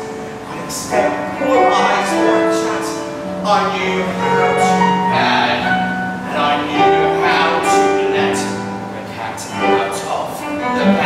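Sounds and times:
instrumental accompaniment: 0:00.0 - 0:11.0
man singing: 0:00.0 - 0:11.0.

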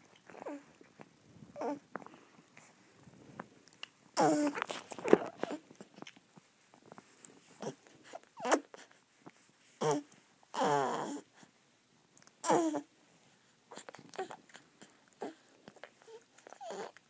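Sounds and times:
baby vocal sounds: 0:00.3 - 0:00.8, 0:01.6 - 0:02.0, 0:04.2 - 0:05.9, 0:07.6 - 0:08.9, 0:09.8 - 0:11.3, 0:12.4 - 0:12.9, 0:13.7 - 0:14.6, 0:15.2 - 0:17.0.

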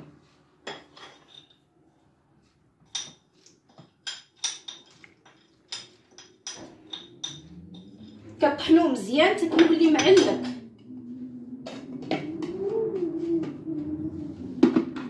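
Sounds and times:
spoon clinking on ceramic plate: 0:04.0 - 0:08.2
faint low hum: 0:06.5 - 0:15.0.

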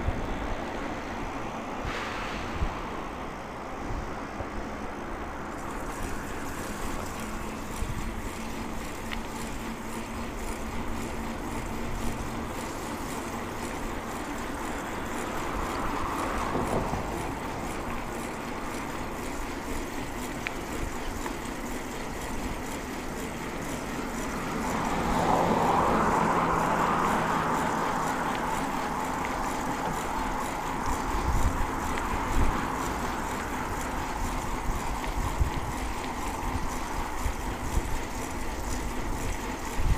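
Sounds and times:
wind noise on microphone: 0:01.8 - 0:04.8, 0:34.4 - 0:38.1, 0:38.8 - 0:39.9
bicycle rolling: 0:04.1 - 0:39.9.

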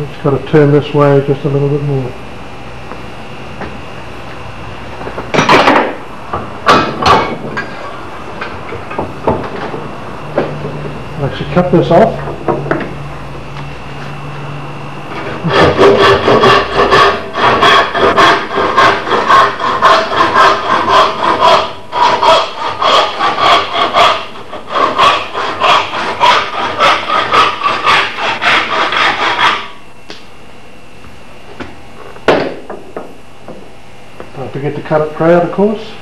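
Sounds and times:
handsaw cutting wood: 0:15.1 - 0:29.8.

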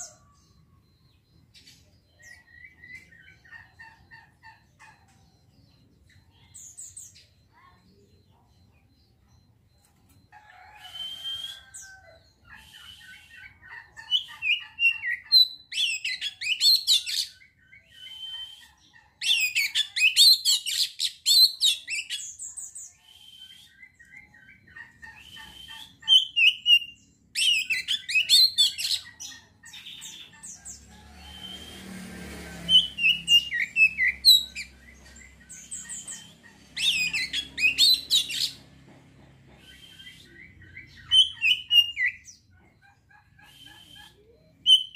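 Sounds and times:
magpie-robin singing: 0:00.0 - 0:09.6, 0:12.3 - 0:31.8, 0:32.6 - 0:38.9, 0:39.5 - 0:44.9.

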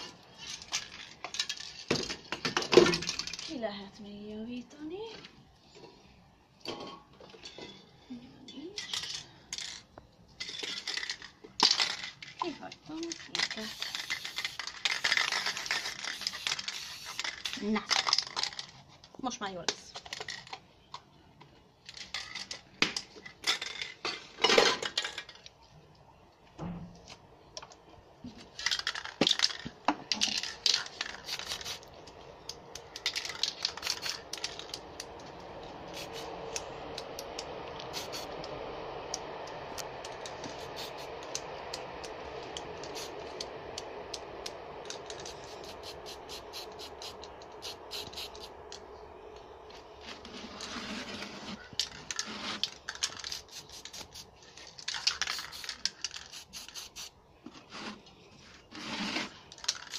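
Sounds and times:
spray cans rattling: 0:00.0 - 0:03.6, 0:08.8 - 0:18.9, 0:28.4 - 0:35.1, 0:37.8 - 0:38.3, 0:40.2 - 0:41.4, 0:42.8 - 0:43.2, 0:44.8 - 0:48.8, 0:51.6 - 0:57.2, 0:59.3 - 0:59.9
steady background noise: 0:00.0 - 0:59.9.

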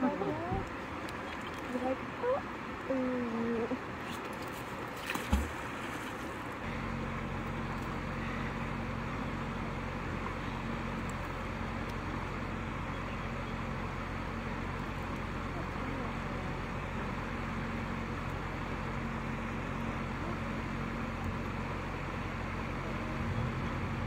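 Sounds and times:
engine idling: 0:06.4 - 0:24.0.

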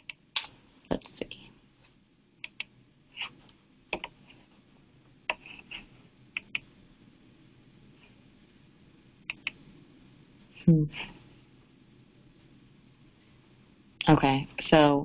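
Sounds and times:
mouse and keyboard clicks: 0:02.4 - 0:03.3, 0:03.9 - 0:04.2, 0:06.4 - 0:06.7, 0:09.3 - 0:09.6.

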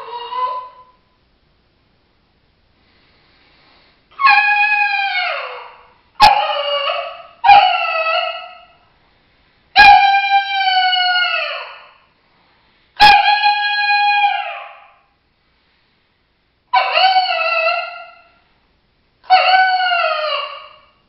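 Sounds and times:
coyote howler call: 0:16.8 - 0:18.3, 0:19.3 - 0:21.0.

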